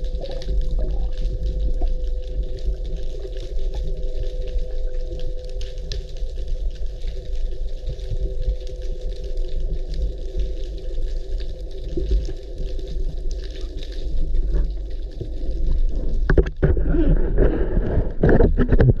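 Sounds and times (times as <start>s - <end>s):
water sloshing and splashing: 0.0s - 5.7s
underwater engine hum: 0.0s - 19.0s.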